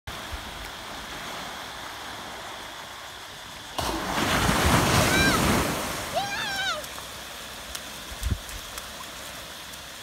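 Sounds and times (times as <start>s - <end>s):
surf hiss: 0.1s - 10.0s
waves breaking on sand: 0.1s - 10.0s
child calling: 5.0s - 6.9s.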